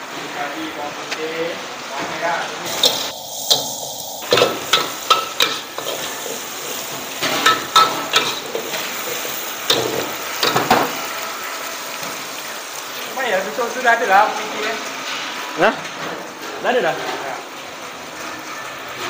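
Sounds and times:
food sizzling in oil: 0:00.0 - 0:19.0
ladle scraping a wok: 0:02.7 - 0:11.1.

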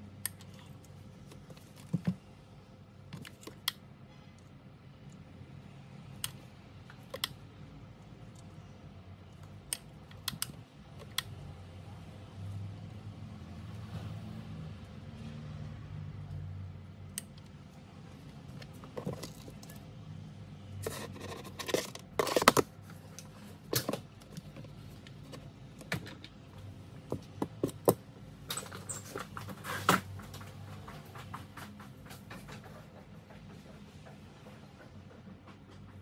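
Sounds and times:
objects clattering on tabletop: 0:20.8 - 0:22.7.

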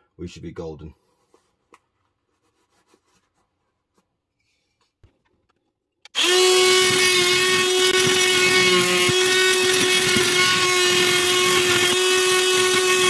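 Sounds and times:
power tool whining: 0:06.1 - 0:13.0.

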